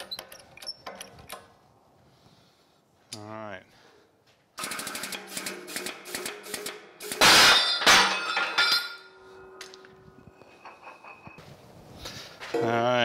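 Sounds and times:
metallic clicks and creaks: 0:00.0 - 0:01.6
loud bang and clatter: 0:04.6 - 0:08.7
ringing metal tone: 0:07.6 - 0:11.5.

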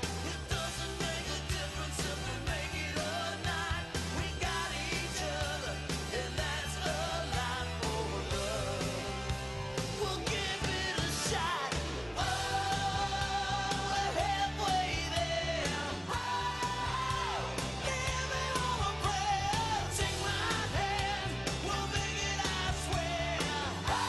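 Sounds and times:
rock-pop song with vocals: 0:00.0 - 0:24.0.

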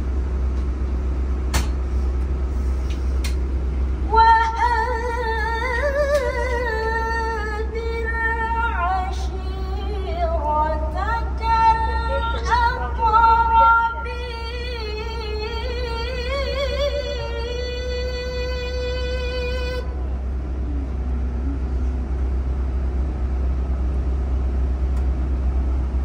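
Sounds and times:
bus engine hum: 0:00.0 - 0:26.0
woman reciting melodically: 0:04.0 - 0:21.7.

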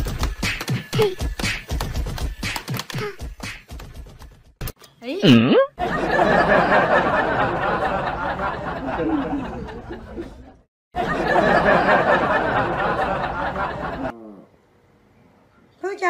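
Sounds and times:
people laughing and chattering: 0:05.8 - 0:14.2.

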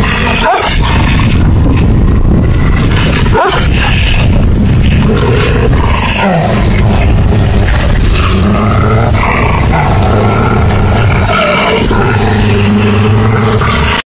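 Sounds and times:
dogs growling: 0:00.0 - 0:14.0.

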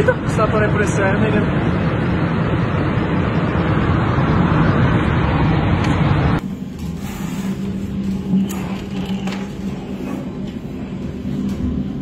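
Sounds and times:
steady hum: 0:00.0 - 0:12.0
strong wind on microphone: 0:01.4 - 0:06.4.

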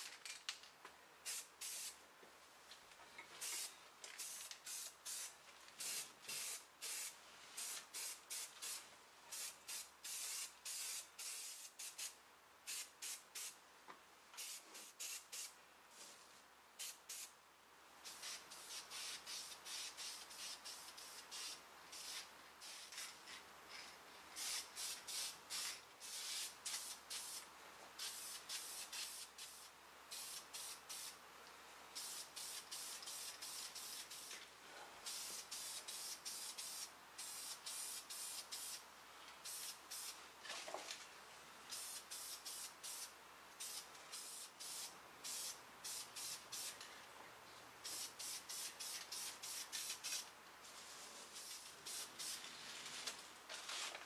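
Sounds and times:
spray paint can hissing bursts: 0:01.2 - 0:02.0, 0:03.4 - 0:13.6, 0:14.4 - 0:15.6, 0:16.8 - 0:17.3, 0:18.0 - 0:23.2, 0:24.4 - 0:31.2, 0:32.0 - 0:34.4, 0:35.0 - 0:38.8, 0:39.4 - 0:40.2, 0:41.7 - 0:46.8, 0:47.8 - 0:50.3, 0:51.4 - 0:52.4.

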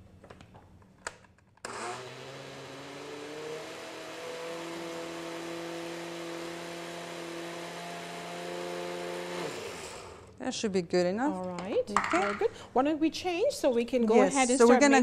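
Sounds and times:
blender motor running: 0:01.6 - 0:10.4.

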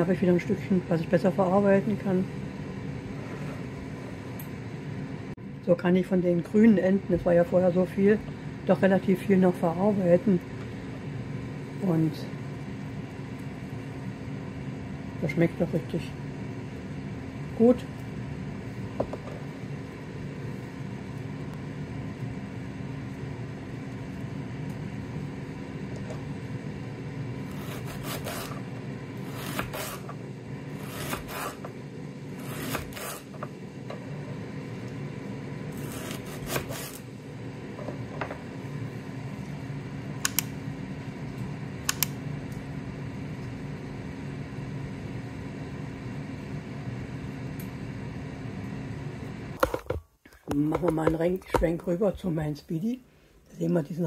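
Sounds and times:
air fryer humming: 0:00.0 - 0:54.0
knife cutting leek on wooden board: 0:27.5 - 0:28.6, 0:29.2 - 0:30.1, 0:30.8 - 0:31.6, 0:32.4 - 0:33.3, 0:35.8 - 0:37.0.

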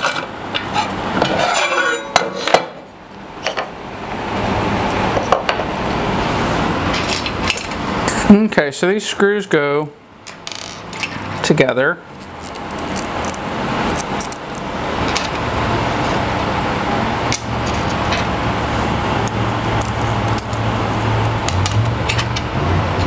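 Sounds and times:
machine-like noise with low hum: 0:00.0 - 0:23.0
metal parts clicking and clinking: 0:06.9 - 0:07.8, 0:10.2 - 0:11.5, 0:12.1 - 0:15.4, 0:19.2 - 0:22.4.

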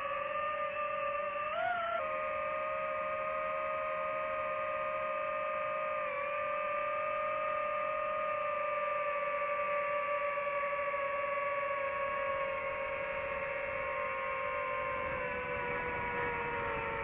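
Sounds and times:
drone propellers whirring: 0:10.5 - 0:17.0.

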